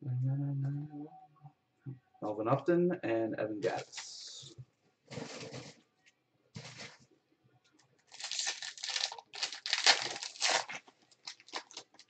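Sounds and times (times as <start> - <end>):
foil wrapper tearing and crinkling: 8.1 - 12.0.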